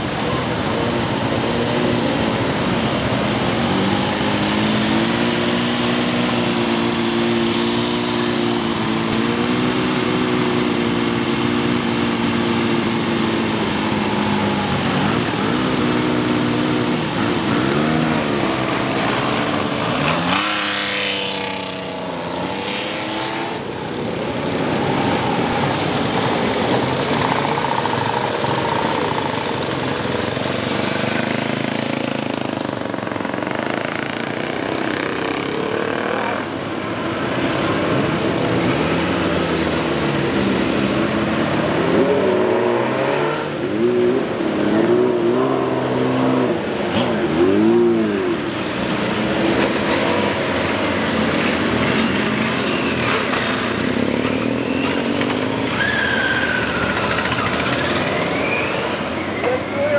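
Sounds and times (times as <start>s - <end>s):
motorcycle engines idling: 0.0s - 20.4s, 23.6s - 41.8s, 48.1s - 59.9s
motorcycle revving and accelerating: 0.0s - 59.9s.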